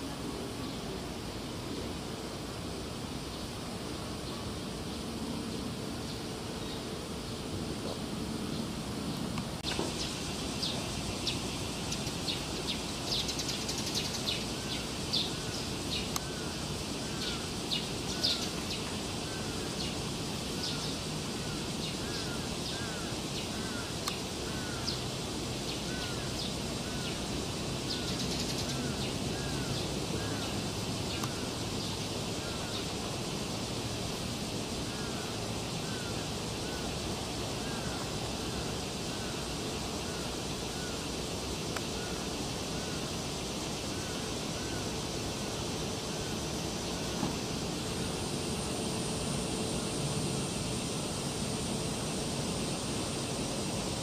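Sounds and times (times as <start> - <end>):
steady background hiss: 0.0 - 54.0.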